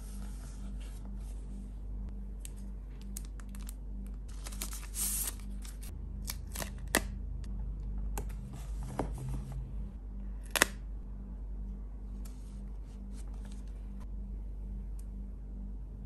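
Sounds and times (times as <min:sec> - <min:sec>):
paper sticker sheet rustling: 0:04.3 - 0:07.0.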